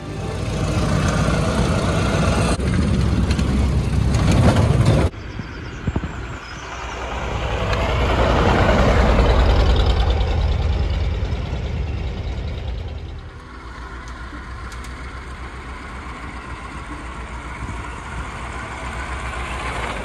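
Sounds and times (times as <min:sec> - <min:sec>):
car engine running: 0:00.0 - 0:05.1.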